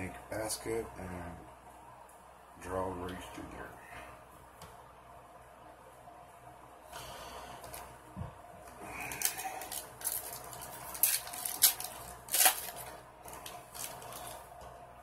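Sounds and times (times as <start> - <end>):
foil wrapper crinkling and tearing: 9.0 - 14.4.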